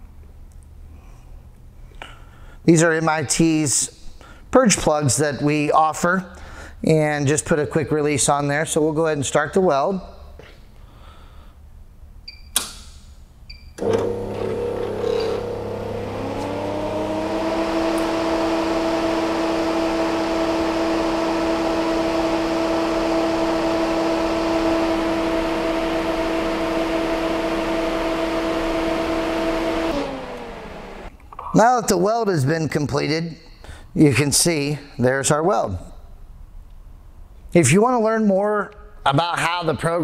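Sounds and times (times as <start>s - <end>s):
sharp click: 12.5s - 13.1s.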